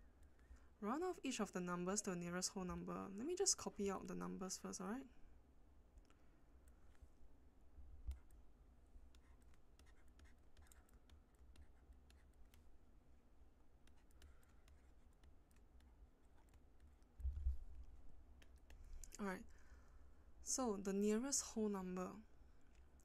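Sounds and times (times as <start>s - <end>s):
low hum: 0.0s - 23.0s
stylus scratching on tablet screen: 9.0s - 12.8s, 13.7s - 17.2s, 17.8s - 19.3s.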